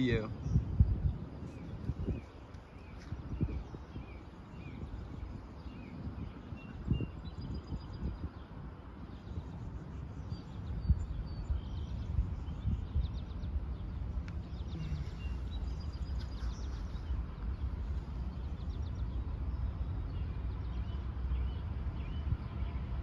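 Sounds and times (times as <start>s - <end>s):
small birds chirping: 0.0s - 23.0s
steady low rumble: 0.0s - 23.0s.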